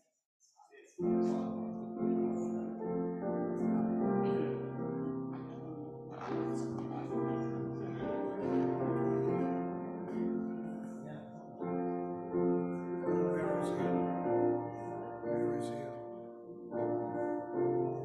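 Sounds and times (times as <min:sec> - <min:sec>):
slow keyboard music: 0:01.0 - 0:18.0.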